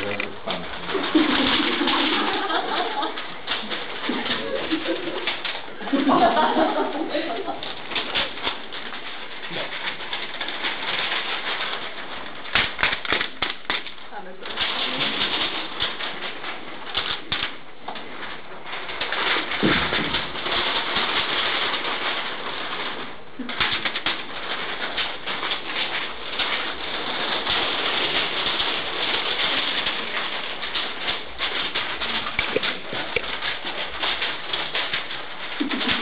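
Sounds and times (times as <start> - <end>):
paper rustling and flapping: 0.0 - 36.0.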